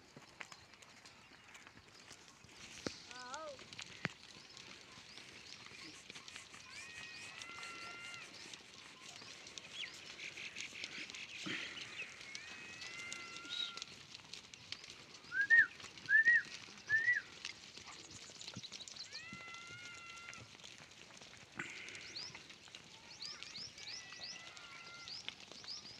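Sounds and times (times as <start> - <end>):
goats bleating: 6.7 - 8.5, 10.6 - 14.0, 19.1 - 20.8.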